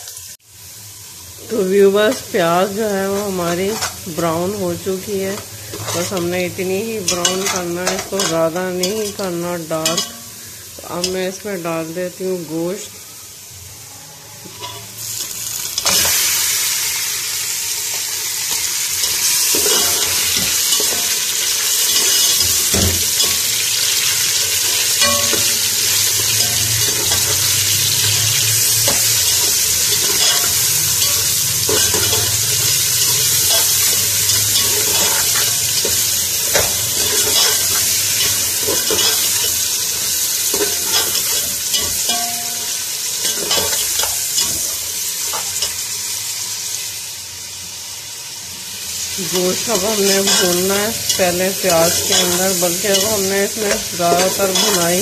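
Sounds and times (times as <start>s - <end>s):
meat sizzling in hot oil: 0.0s - 55.0s
metal spoon scraping pot: 3.5s - 4.0s, 5.6s - 6.4s, 19.0s - 39.7s, 50.1s - 55.0s.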